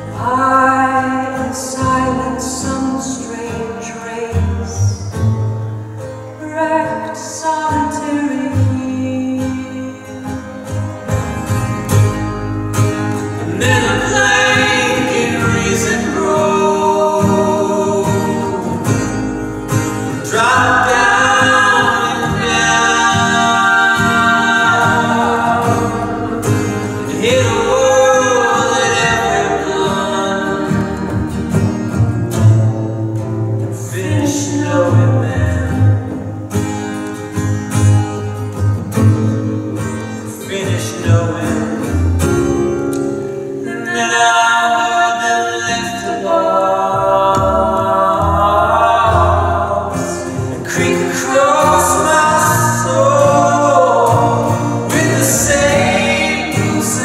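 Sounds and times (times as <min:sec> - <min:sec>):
strummed acoustic guitar: 0:00.0 - 0:57.0
woman and man singing: 0:00.1 - 0:05.0, 0:06.4 - 0:10.3, 0:13.4 - 0:19.0, 0:20.1 - 0:31.4, 0:33.8 - 0:36.2, 0:43.6 - 0:57.0
plucked upright bass: 0:10.4 - 0:40.2, 0:45.7 - 0:57.0.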